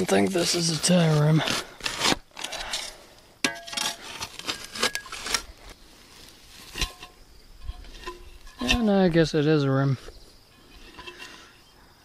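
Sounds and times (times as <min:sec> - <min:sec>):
digging scrapes in soil: 0:00.0 - 0:03.0, 0:03.6 - 0:09.2.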